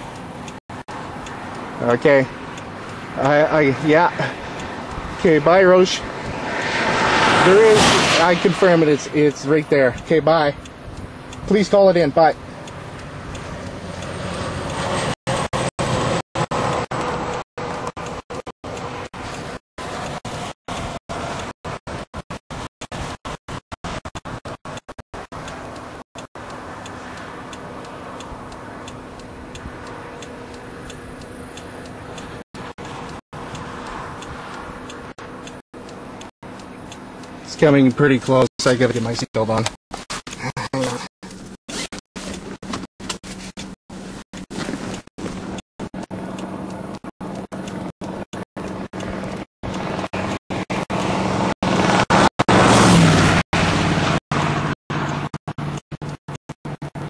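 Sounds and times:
car engine hum: 0.0 - 22.0, 24.2 - 57.0
road noise inside car: 0.0 - 57.0
hazard light flasher ticking: 0.1 - 7.6, 8.2 - 21.8, 24.2 - 42.0, 44.3 - 51.2
rushing noise: 3.2 - 9.9.

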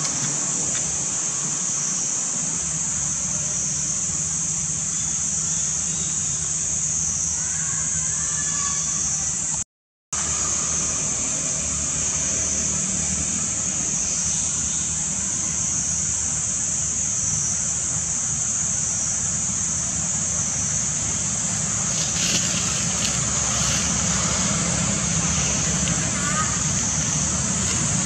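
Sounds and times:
high-pitched insect drone: 0.0 - 9.6, 10.2 - 28.0
low steady rumble: 10.2 - 28.0.

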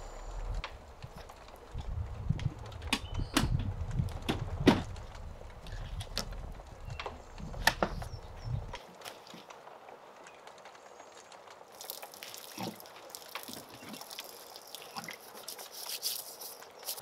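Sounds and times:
gear knocking and clunking: 0.5 - 8.8.

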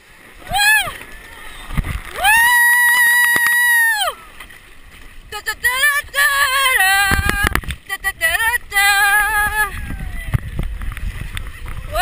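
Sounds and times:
water rushing and splashing: 0.0 - 12.0
woman screaming: 0.4 - 1.0, 2.2 - 4.3
woman yelling: 0.4 - 1.0, 2.2 - 4.2.

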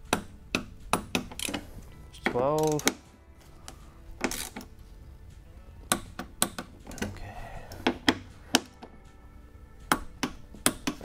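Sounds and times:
torque wrench clicking: 0.1 - 1.6, 2.2 - 3.0, 4.2 - 4.7.

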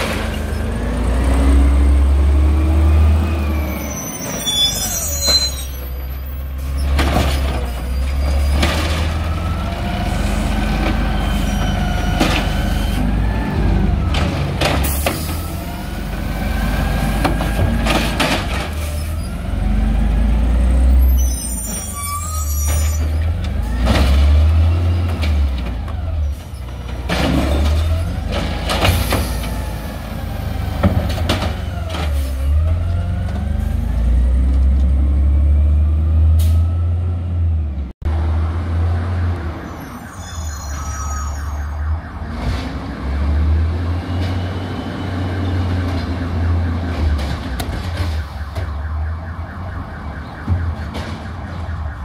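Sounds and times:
garbage truck engine revving: 0.0 - 4.8, 6.5 - 21.1, 22.6 - 38.9.

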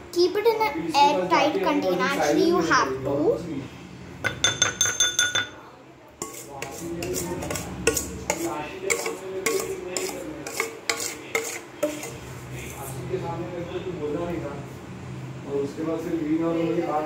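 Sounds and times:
metal spoon tapping steel bowl: 4.2 - 5.6, 6.2 - 12.1
spoon scraping bowl: 6.2 - 13.0.

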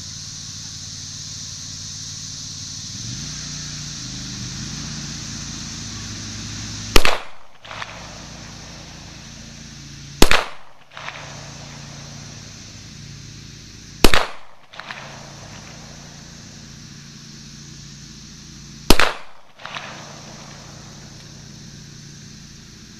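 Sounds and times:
pistol shots: 6.9 - 8.4, 10.2 - 11.9, 14.0 - 15.5, 18.9 - 20.6.

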